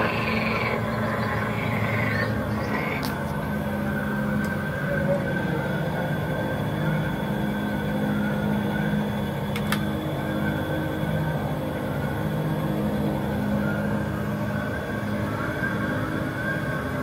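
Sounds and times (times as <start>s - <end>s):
steady mechanical hum: 0.0s - 17.0s.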